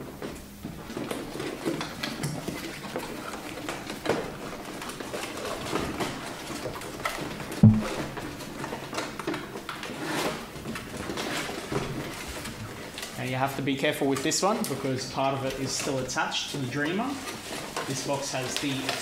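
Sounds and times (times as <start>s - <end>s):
dull thump: 7.6s - 8.0s.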